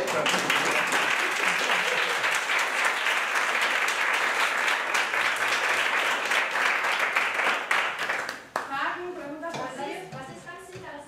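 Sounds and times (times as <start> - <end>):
crowd applauding: 0.0 - 8.7.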